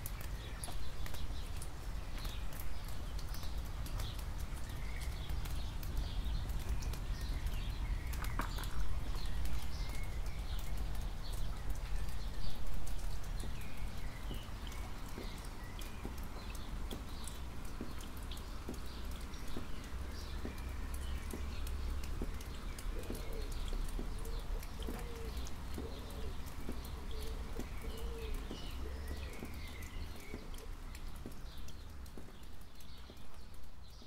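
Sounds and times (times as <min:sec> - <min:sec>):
rain dripping and pattering: 0:00.0 - 0:34.0
small birds chirping: 0:00.0 - 0:34.0
dove cooing: 0:24.8 - 0:26.5.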